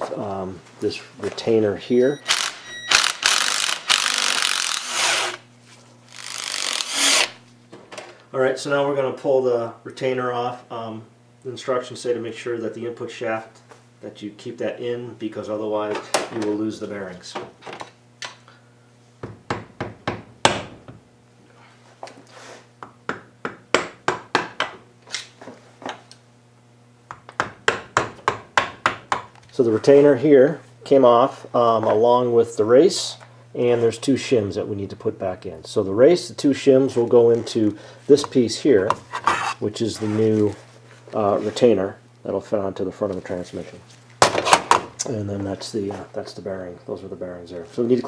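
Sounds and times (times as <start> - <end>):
cordless drill spinning out bolts: 2.2 - 5.4, 6.1 - 7.4.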